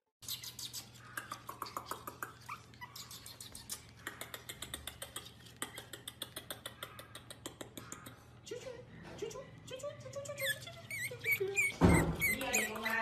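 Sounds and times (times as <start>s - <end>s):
puppy whimpering: 0.3s - 4.1s, 10.2s - 13.0s.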